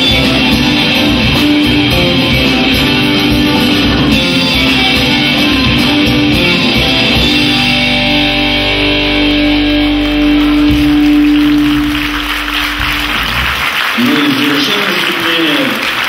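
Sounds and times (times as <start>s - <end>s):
live rock band: 0.0s - 15.2s
audience applause: 9.4s - 16.0s.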